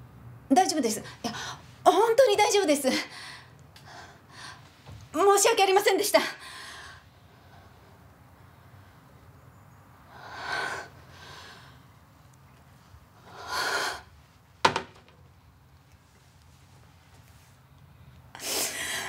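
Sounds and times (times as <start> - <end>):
woman breathing heavily gasping: 18.4 - 19.0.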